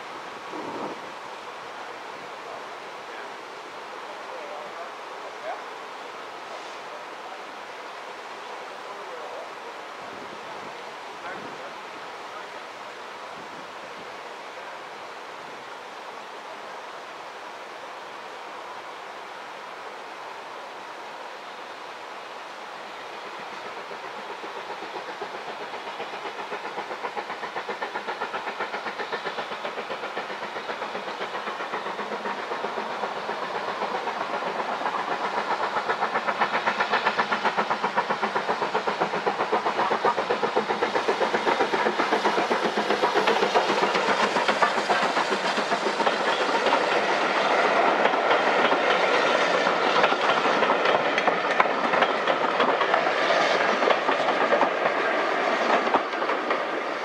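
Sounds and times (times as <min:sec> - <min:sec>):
steam locomotive exhaust beats: 0:21.0 - 0:57.0
train wheels clicking over rail joints: 0:23.0 - 0:57.0.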